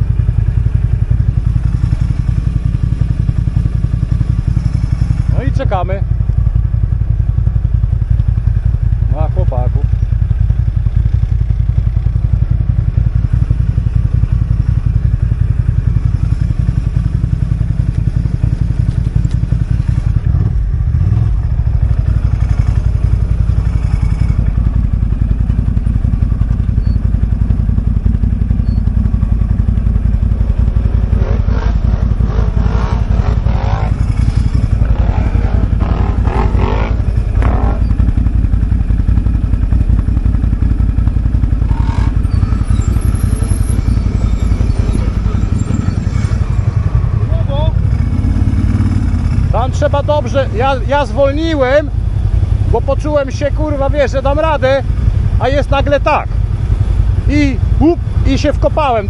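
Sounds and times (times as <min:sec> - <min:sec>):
quad engine idling: 0:00.0 - 0:59.0.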